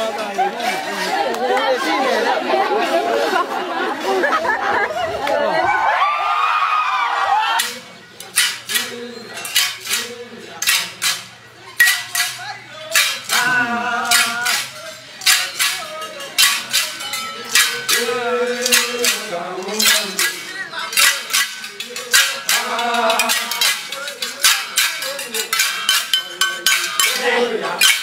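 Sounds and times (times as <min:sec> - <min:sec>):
sharp metallic clinks: 0:07.6 - 0:13.4, 0:14.0 - 0:28.0
men singing: 0:07.6 - 0:28.0.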